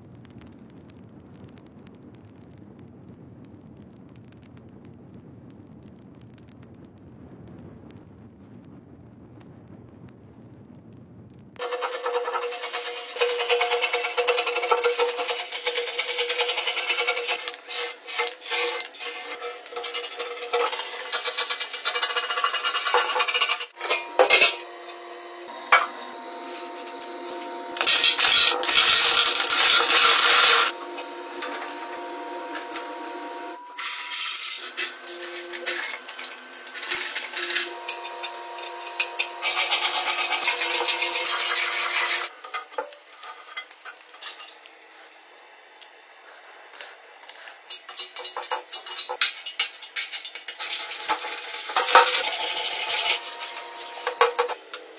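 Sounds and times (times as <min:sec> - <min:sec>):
abrasive disc scraping metal: 0:11.6 - 0:45.2, 0:46.3 - 0:54.9
stone chips clattering in tank: 0:27.8 - 0:30.7.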